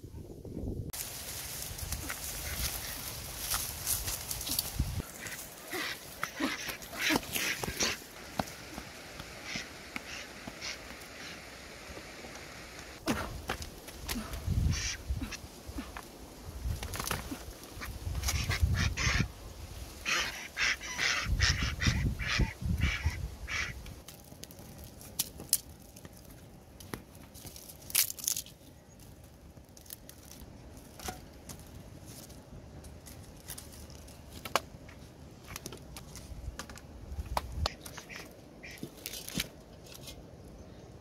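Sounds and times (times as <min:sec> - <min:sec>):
duck calling: 0:09.4 - 0:11.4, 0:14.7 - 0:15.4, 0:17.8 - 0:19.3, 0:20.0 - 0:23.8.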